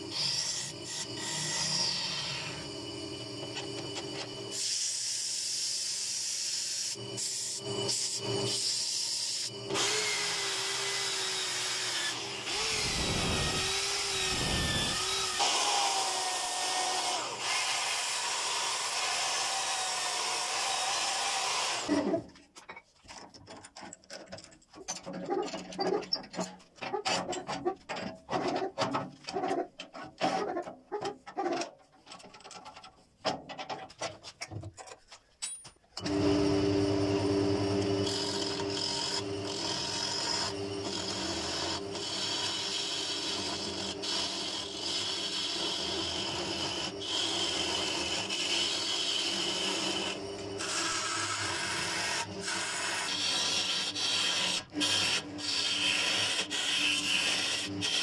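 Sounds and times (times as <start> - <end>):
power drill motor whine: 0.0 - 4.5, 6.9 - 22.2, 36.0 - 57.8
wood lathe running: 9.4 - 21.9, 36.0 - 58.0
sanding disc hissing on wood: 12.5 - 15.4.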